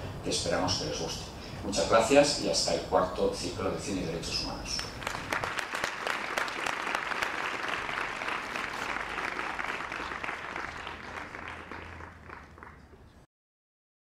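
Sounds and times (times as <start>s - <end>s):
large audience applauding: 4.8s - 13.1s.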